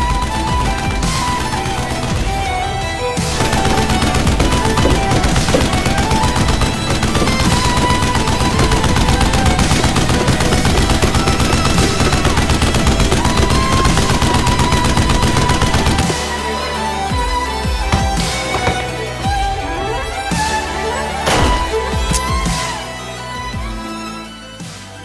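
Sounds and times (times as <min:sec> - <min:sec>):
music: 0:00.0 - 0:25.0
toy blaster firing rapidly: 0:03.3 - 0:16.2.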